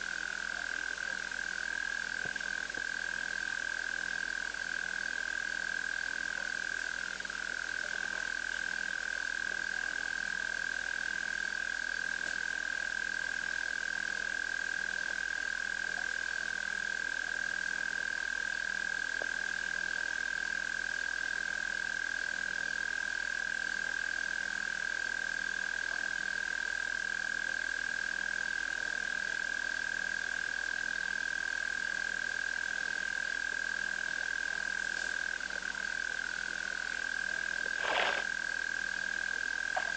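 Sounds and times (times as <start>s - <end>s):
faint low frog croak: 34.0s - 39.9s
frog trill: 37.6s - 38.3s.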